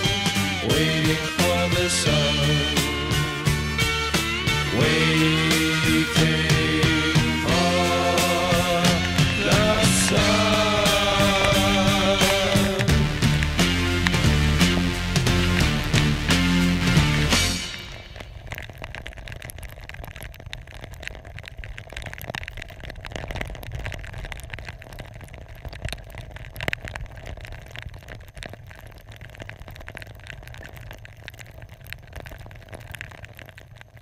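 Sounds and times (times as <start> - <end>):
low rumble: 0.0 - 21.9
muffled rain taps: 0.0 - 34.0.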